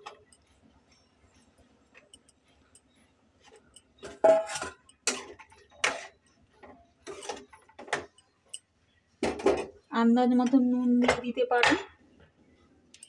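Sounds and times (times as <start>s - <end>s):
faint ticking of simmering: 0.0s - 9.1s
metal spatula scraping a pan: 4.0s - 6.2s.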